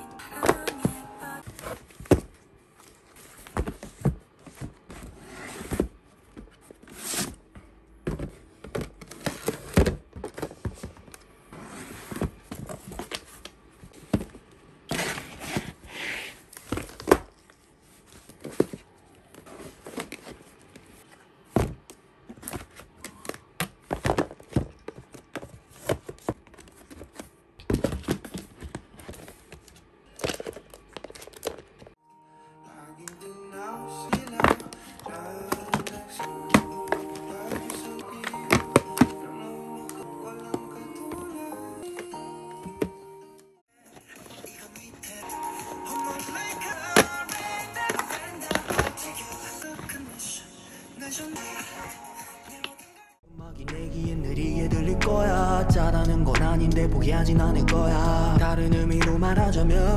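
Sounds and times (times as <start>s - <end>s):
boxed items shuffled into cardboard box: 0.3s - 31.9s, 34.1s - 39.6s, 45.5s - 50.3s.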